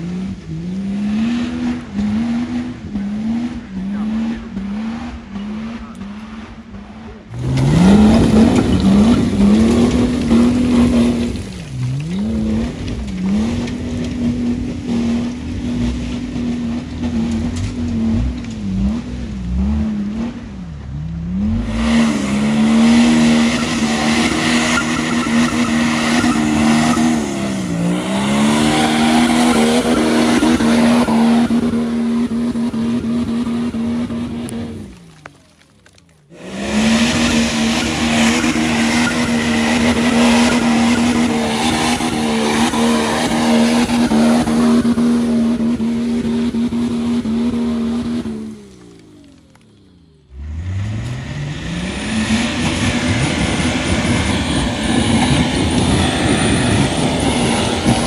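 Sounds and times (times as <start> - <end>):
diesel engine at high revs: 0.0 - 35.4, 36.3 - 58.0
tyres spinning in mud: 7.3 - 18.9, 21.5 - 49.8.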